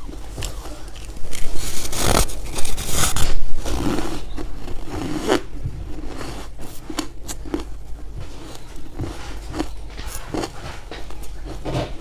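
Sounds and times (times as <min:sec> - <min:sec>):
soft chewing: 0:00.0 - 0:12.0.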